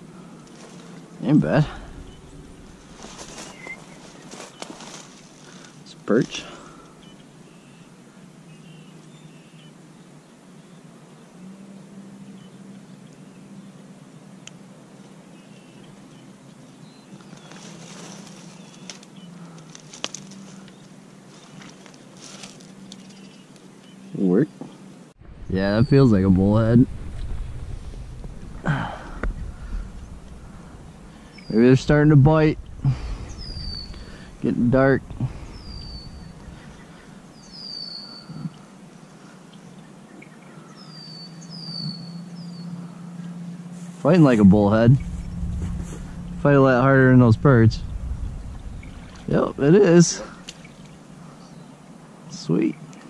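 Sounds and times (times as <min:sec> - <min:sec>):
rustling: 0:00.0 - 0:05.9, 0:17.2 - 0:23.3, 0:26.3 - 0:37.6, 0:44.7 - 0:51.4
low steady hum: 0:00.0 - 0:53.0
faint bird chirps: 0:01.7 - 0:05.6, 0:06.7 - 0:10.8, 0:29.1 - 0:43.7
bird whistled calls: 0:03.1 - 0:04.7, 0:33.3 - 0:34.2, 0:35.5 - 0:38.5, 0:40.7 - 0:42.8.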